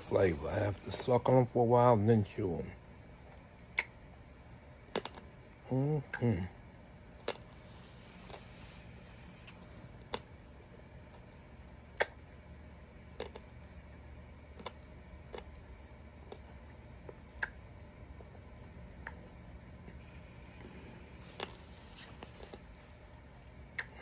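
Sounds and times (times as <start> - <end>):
low steady hum: 0.0 - 24.0
wet mouth clicks and smacks: 3.6 - 4.2, 4.9 - 5.3, 12.0 - 12.2, 16.3 - 17.7, 23.7 - 24.0.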